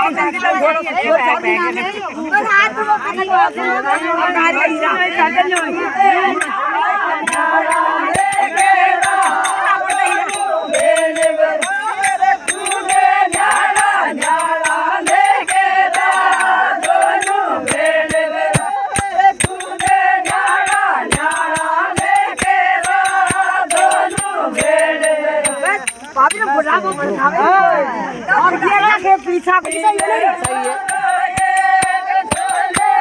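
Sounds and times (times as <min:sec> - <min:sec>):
women singing folk song: 0:01.8 - 0:27.8, 0:29.4 - 0:33.0
hand claps: 0:07.2 - 0:27.0, 0:29.7 - 0:33.0.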